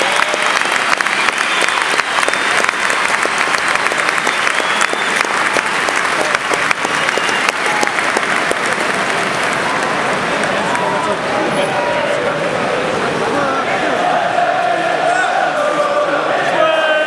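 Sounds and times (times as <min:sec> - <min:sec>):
stadium crowd applauding: 0:00.0 - 0:12.4.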